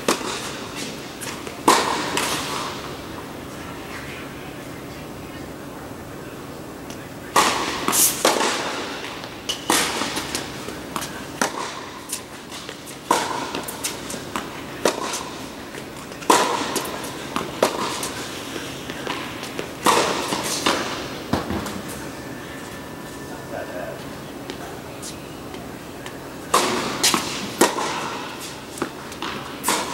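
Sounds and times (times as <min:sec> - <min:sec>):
tennis ball bouncing: 0:00.0 - 0:02.7, 0:07.4 - 0:22.0, 0:26.5 - 0:29.9
tennis racquet striking ball: 0:01.2 - 0:02.8, 0:07.3 - 0:15.5, 0:16.1 - 0:22.0, 0:26.5 - 0:29.9.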